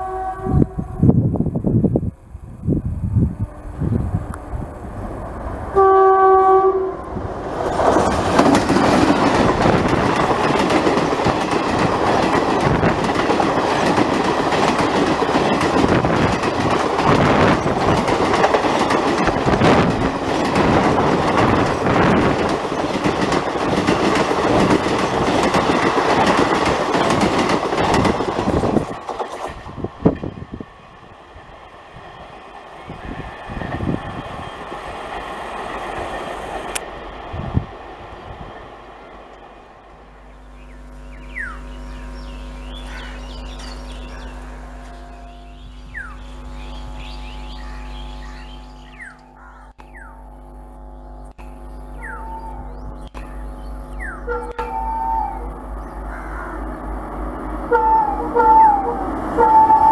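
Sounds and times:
locomotive horn: 0.0s - 1.2s, 3.4s - 5.1s, 5.7s - 7.2s, 44.0s - 48.2s, 52.0s - 52.8s, 54.0s - 55.7s, 57.6s - 59.9s
train wheels rumbling on rail: 0.0s - 50.0s, 50.8s - 59.9s.

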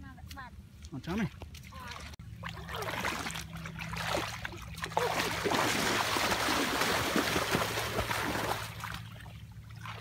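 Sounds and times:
splashing muddy water: 1.5s - 10.0s.

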